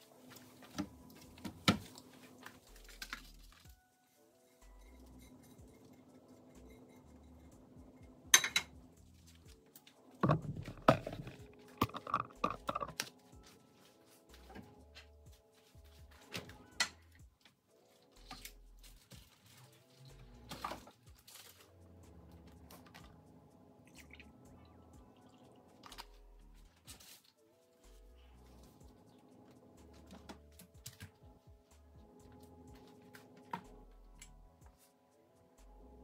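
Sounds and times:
faint background music: 0:00.0 - 0:36.0
kitchenware clattering on countertop: 0:08.4 - 0:08.8, 0:10.2 - 0:13.0.

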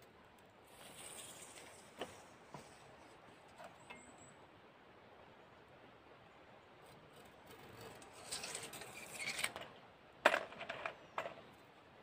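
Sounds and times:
rustling handling noise: 0:00.7 - 0:04.0.

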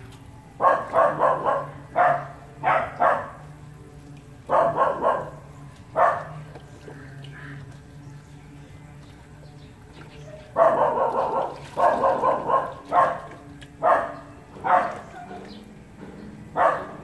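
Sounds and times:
dog yelping: 0:10.4 - 0:15.4, 0:16.6 - 0:17.0.

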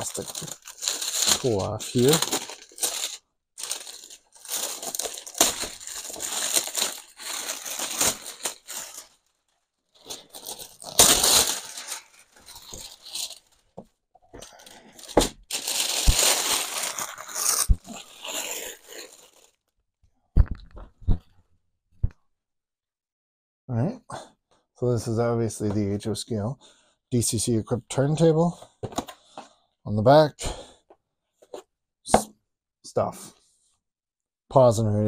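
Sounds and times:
plastic wrapping tearing and crinkling: 0:00.0 - 0:13.7, 0:14.5 - 0:19.6.

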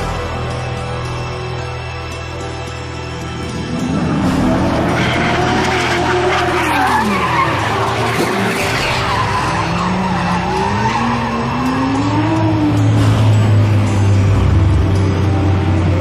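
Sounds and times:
deep engine drone: 0:00.0 - 0:16.0
engines revving: 0:03.1 - 0:16.0
tyres squealing: 0:04.5 - 0:12.7.

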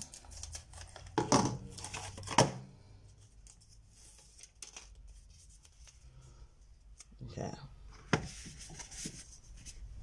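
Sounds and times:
paper rustling: 0:08.2 - 0:09.8.

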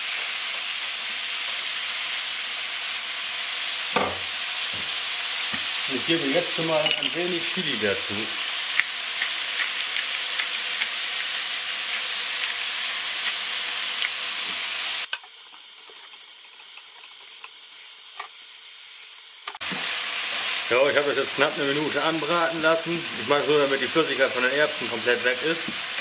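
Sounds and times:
food sizzling in a pan: 0:00.0 - 0:26.0.

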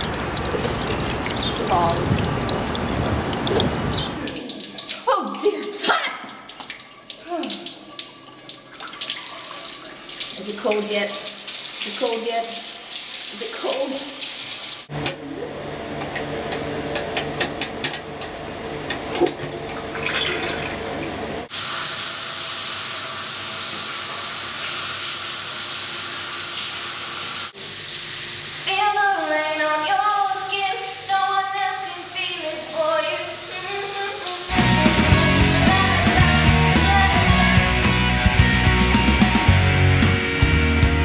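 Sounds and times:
toilet flushing: 0:00.0 - 0:14.9, 0:18.8 - 0:37.6.

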